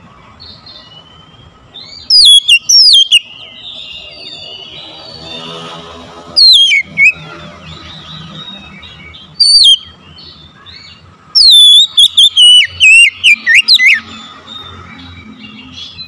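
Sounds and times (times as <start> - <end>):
bird whistling sharp notes: 2.0 - 4.8, 6.4 - 7.3, 9.4 - 9.9, 11.4 - 14.1.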